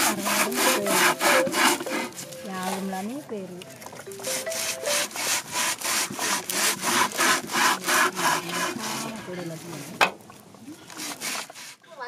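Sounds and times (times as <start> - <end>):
hand saw cutting paper tubes: 0.0 - 2.3, 4.2 - 9.4, 10.9 - 11.8.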